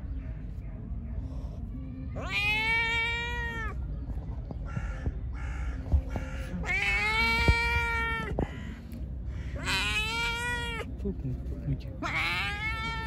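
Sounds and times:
cat meowing: 0:02.2 - 0:03.8, 0:06.6 - 0:08.6, 0:09.6 - 0:10.9, 0:12.0 - 0:13.0.

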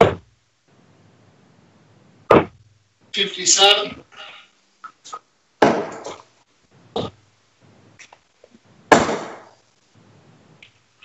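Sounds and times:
darts thudding into dartboard: 0:00.0 - 0:00.3, 0:02.3 - 0:02.6, 0:05.6 - 0:06.2, 0:08.9 - 0:09.5.

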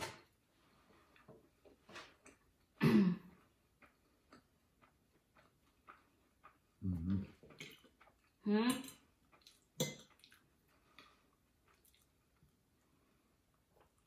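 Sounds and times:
person clearing throat: 0:02.8 - 0:03.4
clicks and taps of eating: 0:03.7 - 0:11.1.

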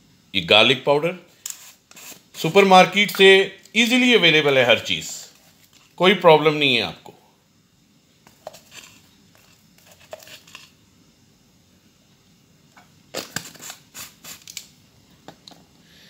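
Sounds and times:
spice shaker rattling: 0:08.3 - 0:10.8, 0:13.2 - 0:14.7.

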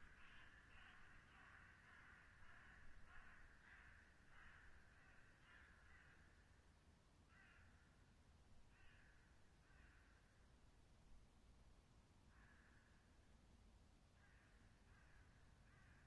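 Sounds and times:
crow cawing: 0:00.0 - 0:06.4, 0:07.3 - 0:07.9, 0:08.7 - 0:10.2, 0:12.3 - 0:13.0, 0:14.2 - 0:16.0.

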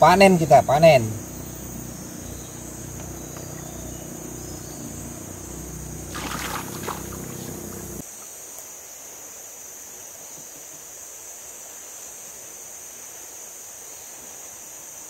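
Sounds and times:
river water splashing: 0:00.0 - 0:08.2
insects droning: 0:00.0 - 0:15.0.

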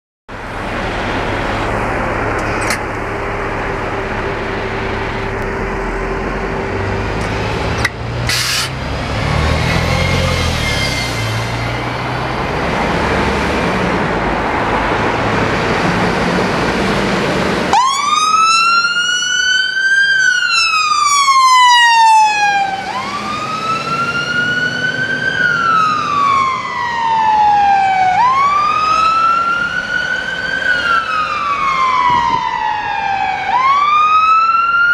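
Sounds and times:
diesel engine running: 0:00.3 - 0:19.1
wailing siren: 0:09.5 - 0:13.4, 0:17.7 - 0:34.9.

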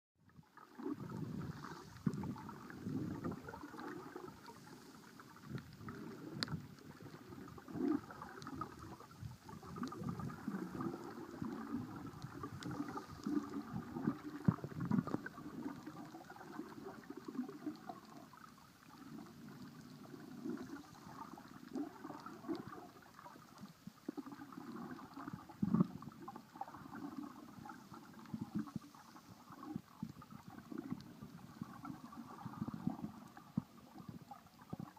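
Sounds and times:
underwater gurgling and sloshing: 0:00.2 - 0:34.9
faint clicks: 0:04.4 - 0:06.6.

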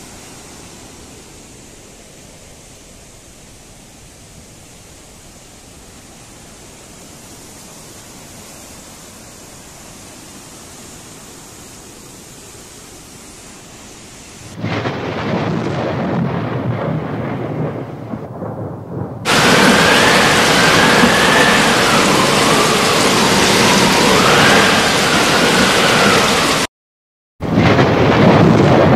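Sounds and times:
floodwater rushing: 0:00.0 - 0:16.4, 0:19.2 - 0:26.7
heavy rain: 0:00.0 - 0:26.7, 0:27.4 - 0:28.9
faint wavering whistle: 0:19.6 - 0:26.7.

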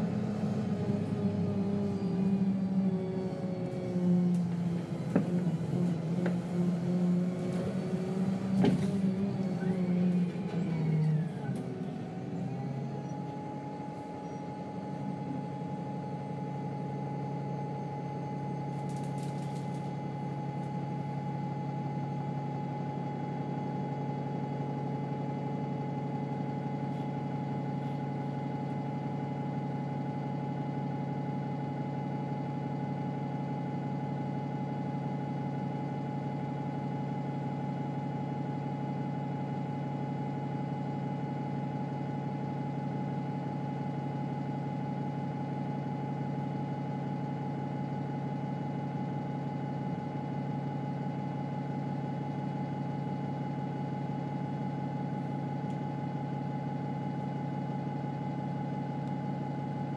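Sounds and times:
bus engine idling: 0:00.0 - 0:30.8.

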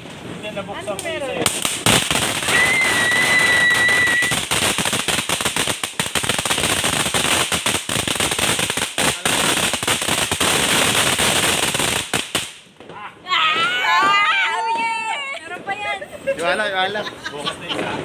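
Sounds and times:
firework crackling: 0:00.0 - 0:18.0
high firework whistle: 0:02.3 - 0:04.5.

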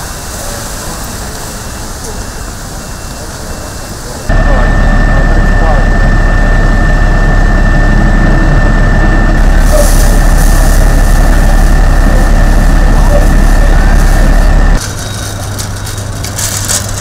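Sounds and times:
thin steady whine: 0:00.0 - 0:16.9
vehicle engine idling: 0:04.3 - 0:14.8.

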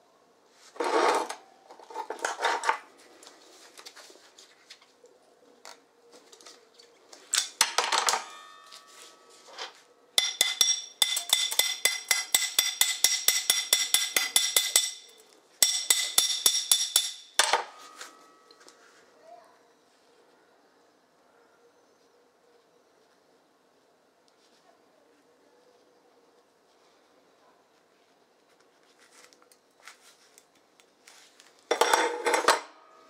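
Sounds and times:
hammer striking steel bar: 0:08.2 - 0:08.8, 0:10.2 - 0:18.5.

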